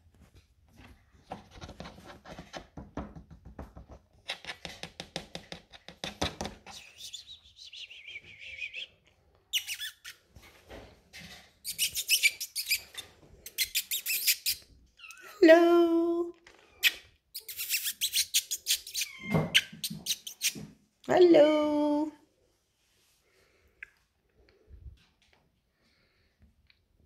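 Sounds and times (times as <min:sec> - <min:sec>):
kitten claws scratching: 0:01.2 - 0:07.4, 0:11.6 - 0:14.7, 0:16.7 - 0:20.6
claws clicking on tiled floor: 0:01.6 - 0:06.8
high squeak: 0:11.6 - 0:14.6.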